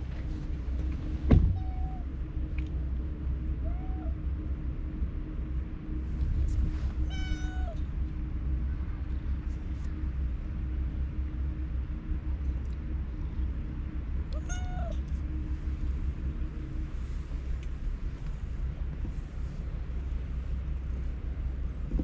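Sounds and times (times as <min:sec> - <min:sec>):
low background rumble: 0:00.0 - 0:22.0
cat meowing: 0:07.1 - 0:07.8, 0:14.3 - 0:15.0.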